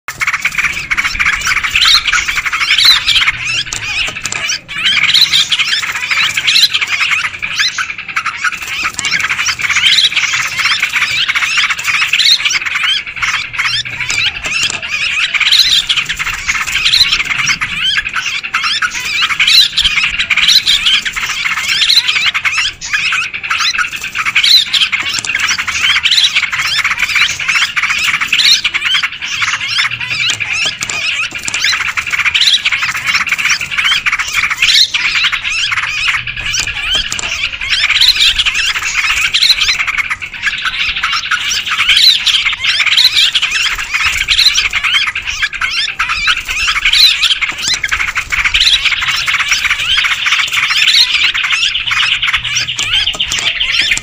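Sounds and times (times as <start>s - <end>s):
bulbuls calling and chattering: 0.0s - 54.0s.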